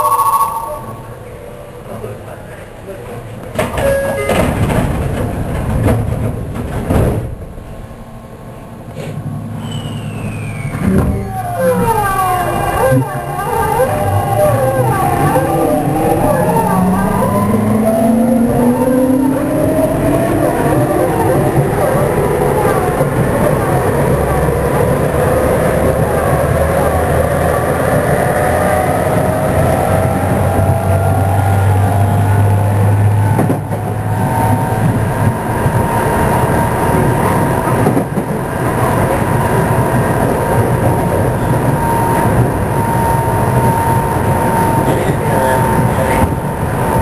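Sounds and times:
brief tone: 0.0 - 1.0, 3.8 - 4.4, 9.6 - 10.9
train hum: 0.0 - 47.0
train doors sliding closed: 3.3 - 8.0, 8.8 - 12.0, 33.0 - 35.8, 36.4 - 42.6.

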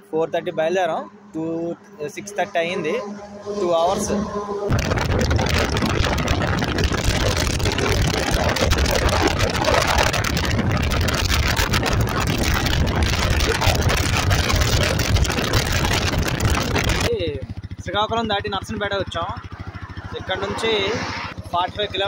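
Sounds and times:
motorcycle engine: 0.0 - 22.0
wind buffeting microphone: 2.4 - 17.8
tyre noise: 4.0 - 17.1.

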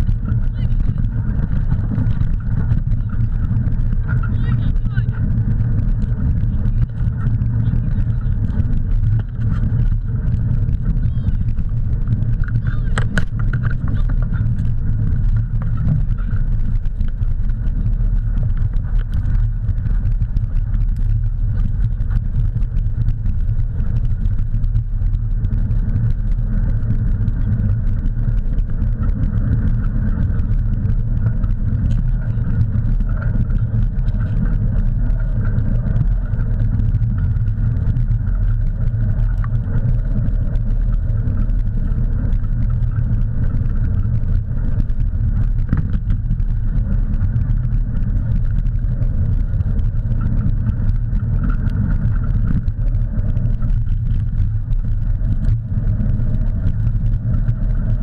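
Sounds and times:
wheels rolling over dirt trail: 0.0 - 58.0
wind on microphone: 0.0 - 58.0.

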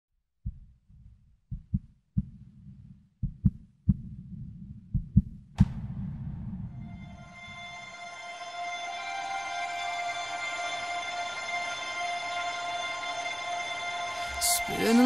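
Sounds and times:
heartbeat thumps: 0.4 - 7.2
sustained music: 5.6 - 15.0.

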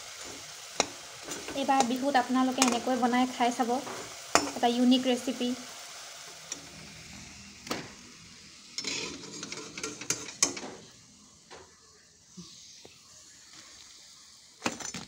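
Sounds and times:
patties deep-frying in oil: 0.0 - 15.0
metal utensil clinks and scrapes: 8.8 - 10.6.

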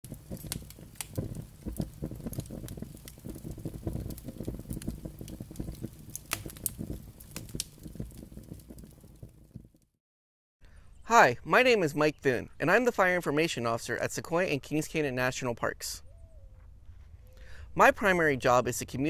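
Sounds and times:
fire crackling and popping: 0.0 - 10.0
low fire rumble: 0.0 - 10.0.

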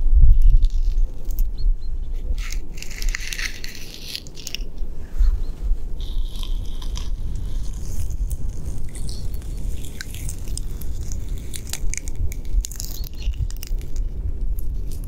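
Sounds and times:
gloved fingers scratching tree bark: 2.1 - 4.9, 5.9 - 15.0.

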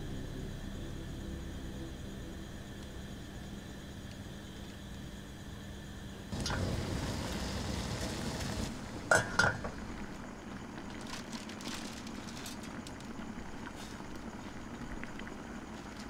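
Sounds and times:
simmering water hissing: 5.2 - 10.8.

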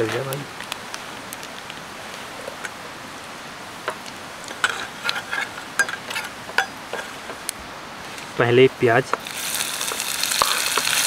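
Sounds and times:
spices sizzling in hot oil: 3.7 - 11.0.

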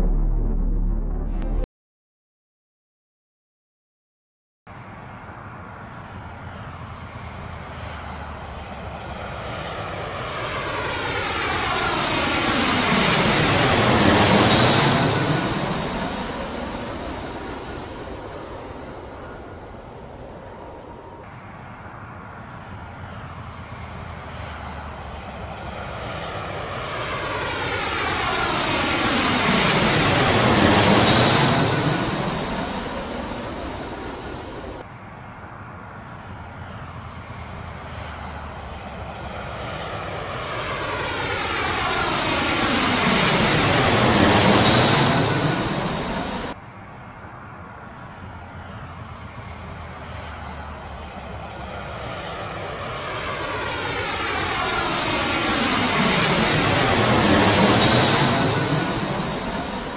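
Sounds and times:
ambient synthesizer music: 0.0 - 1.7
jet aircraft engine noise: 4.7 - 59.9.

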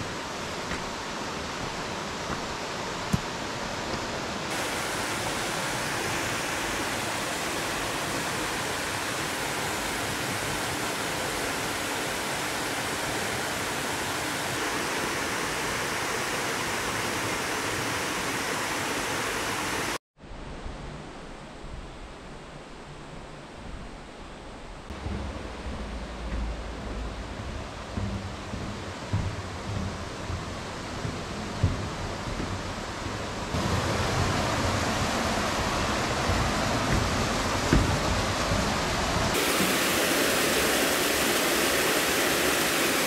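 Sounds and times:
waterfall pouring into pool: 4.4 - 20.0, 33.5 - 43.0.

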